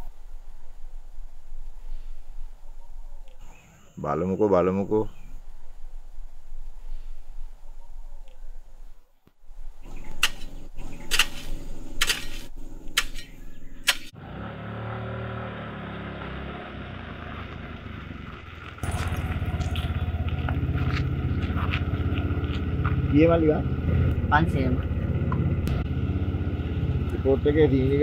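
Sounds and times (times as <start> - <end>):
hoe chopping soil: 10.2 - 14.1
auto-rickshaw engine running: 14.2 - 28.0.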